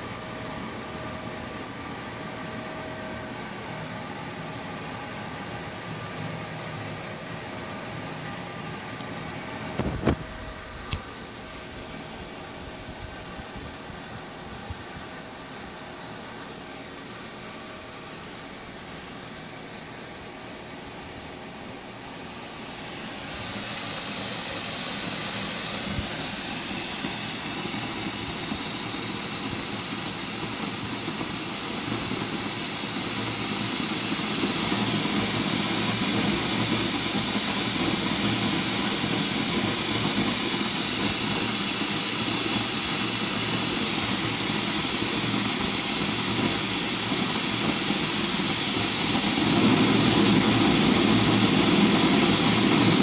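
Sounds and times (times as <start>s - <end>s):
gas burner flame hissing: 0.0s - 53.0s.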